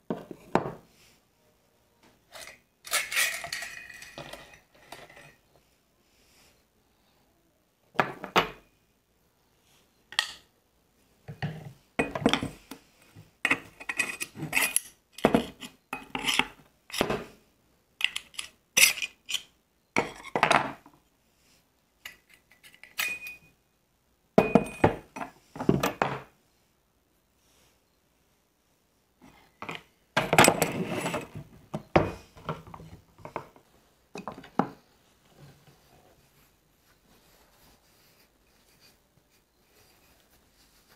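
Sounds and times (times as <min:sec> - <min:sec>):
metal parts clinking on wooden table: 0:02.3 - 0:05.4, 0:18.0 - 0:20.7.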